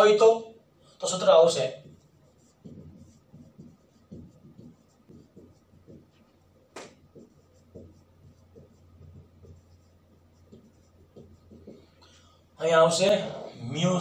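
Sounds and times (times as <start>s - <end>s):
low steady hum: 0.0s - 14.0s
marker writing on whiteboard: 1.0s - 12.1s.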